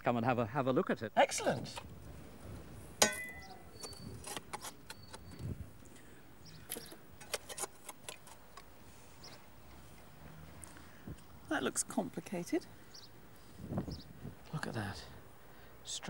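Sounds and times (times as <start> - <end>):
metal spade clang: 3.0 - 5.2
spade clinks and scrapes in soil: 3.0 - 5.5, 6.7 - 8.6.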